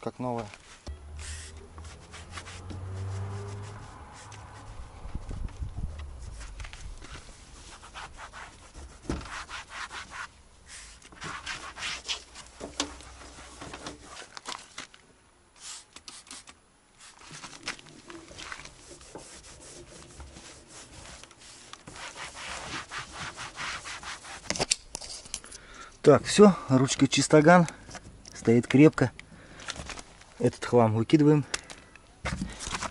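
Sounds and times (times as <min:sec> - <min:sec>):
cloth rubbing on plastic: 0:00.6 - 0:04.9, 0:06.1 - 0:14.4, 0:17.0 - 0:24.5.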